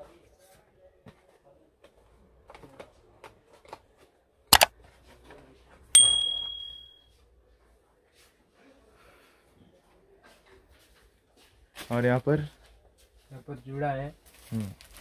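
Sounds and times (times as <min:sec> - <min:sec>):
notification bell ding: 0:06.0 - 0:07.0.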